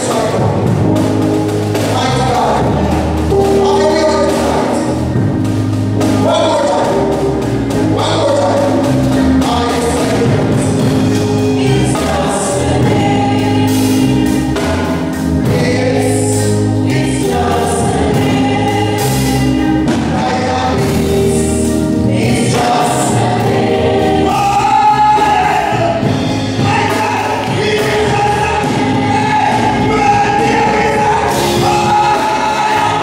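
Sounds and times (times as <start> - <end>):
man singing gospel lead: 0.0 - 33.0
musical accompaniment: 0.0 - 33.0
backing choir voices: 8.1 - 33.0.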